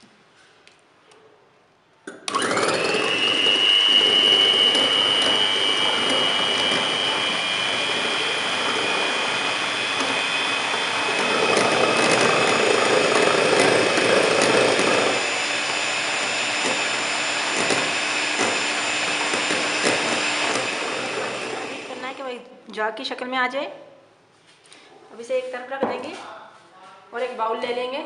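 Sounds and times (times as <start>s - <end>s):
electric hand mixer whirring: 2.3s - 22.2s.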